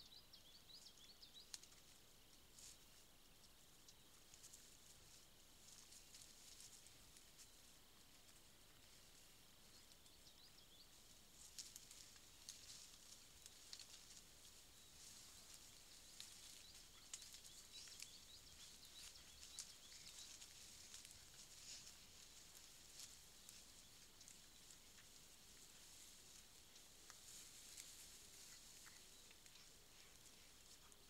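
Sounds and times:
rustling in grass: 0:00.8 - 0:31.0
faint high chirps: 0:03.4 - 0:31.0.

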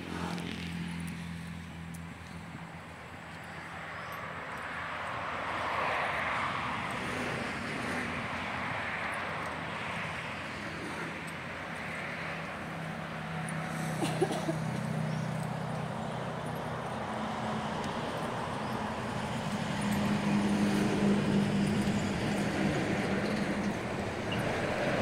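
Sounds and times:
passing vehicle rushing: 0:14.7 - 0:25.0.

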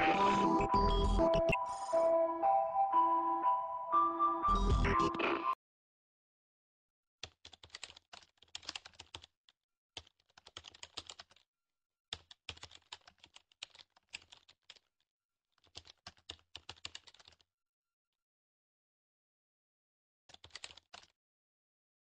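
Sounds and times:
rapid keyboard key clicks: 0:07.2 - 0:09.3, 0:10.0 - 0:11.4, 0:12.1 - 0:14.9, 0:15.6 - 0:17.4, 0:20.3 - 0:21.1.

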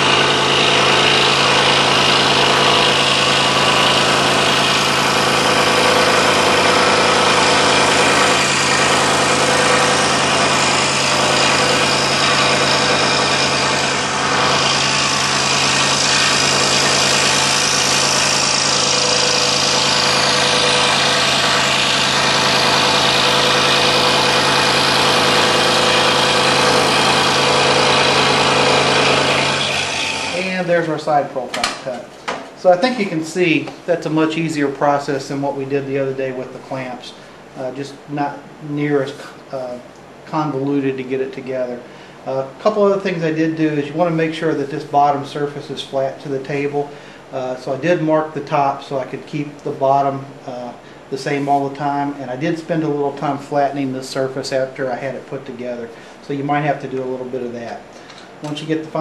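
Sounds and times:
scroll saw cutting wood: 0:00.0 - 0:30.8.

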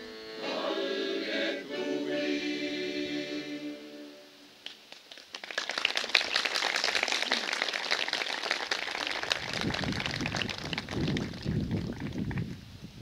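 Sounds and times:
crowd clapping: 0:04.6 - 0:12.6
wind rumbling on microphone: 0:09.2 - 0:13.0.

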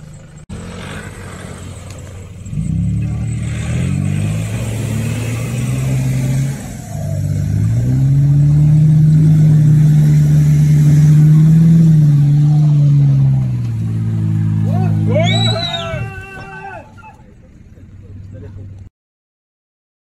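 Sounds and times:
engines revving hard: 0:00.0 - 0:18.9.

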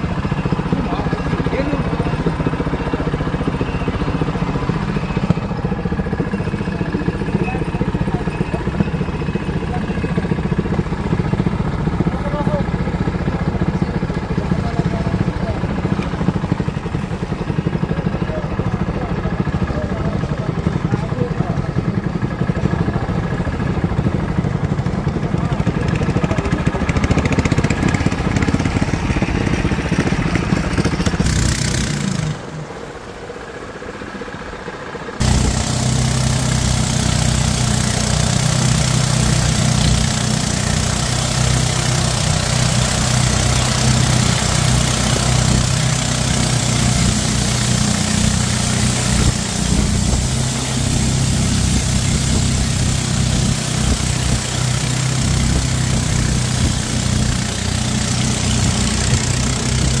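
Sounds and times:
boat engine running: 0:00.0 - 1:00.0
water rushing along hull: 0:35.2 - 1:00.0.

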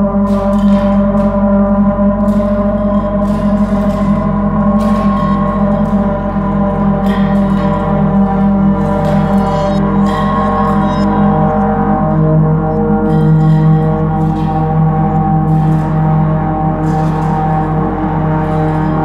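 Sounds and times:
ambient drone music: 0:00.0 - 0:19.0.

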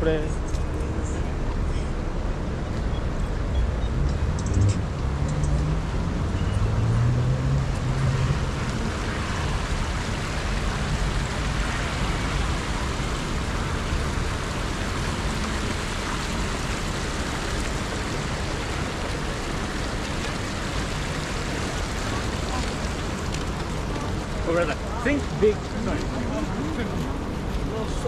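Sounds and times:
street traffic noise: 0:00.0 - 0:28.0
vehicle engine hum: 0:00.0 - 0:28.0.

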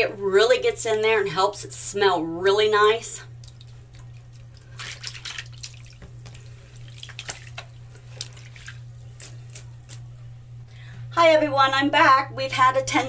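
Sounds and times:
low steady hum: 0:00.0 - 0:13.0
water splashing in a sink: 0:02.8 - 0:09.0.

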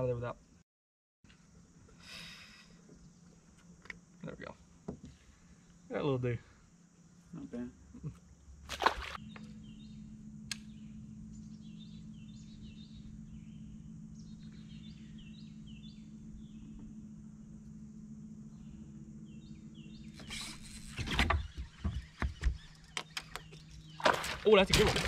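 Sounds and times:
birds chirping: 0:02.6 - 0:25.0
fish splashing into water: 0:08.7 - 0:09.2
electric motor humming: 0:09.2 - 0:24.0.

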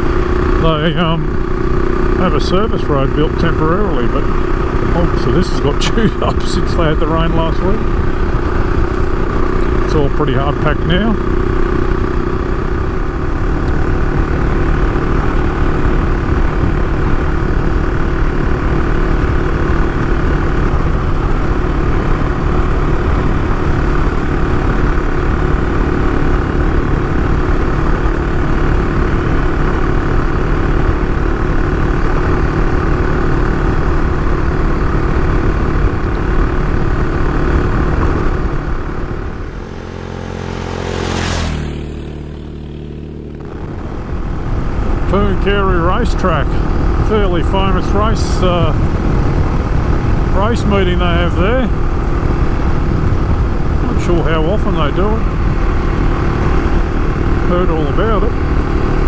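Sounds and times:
motorcycle engine running: 0:00.0 - 0:59.0
wind noise: 0:43.4 - 0:59.0.

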